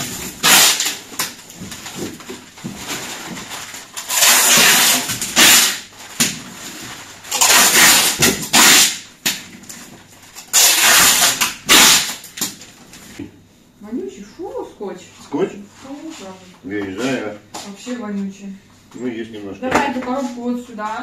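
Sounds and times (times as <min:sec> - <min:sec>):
packing tape screeching off roll: 0:00.0 - 0:01.4, 0:02.9 - 0:05.9, 0:07.3 - 0:09.1, 0:10.4 - 0:12.4.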